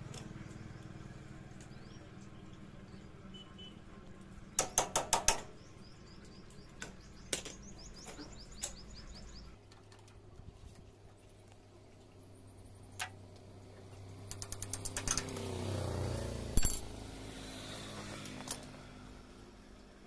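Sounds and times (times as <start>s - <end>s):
birds chirping: 5.4s - 10.0s
pliers clicking on metal chain: 16.2s - 16.9s.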